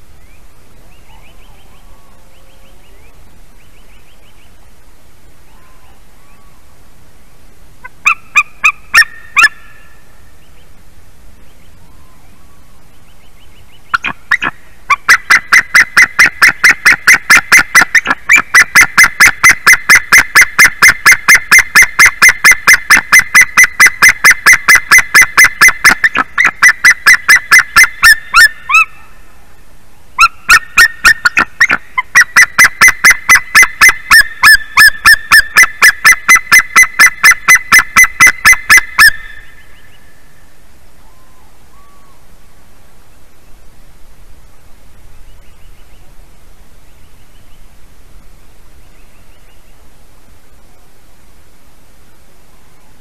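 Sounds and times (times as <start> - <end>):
eagle yelping calls: 7.8 - 10.0, 13.9 - 29.2, 30.2 - 40.1.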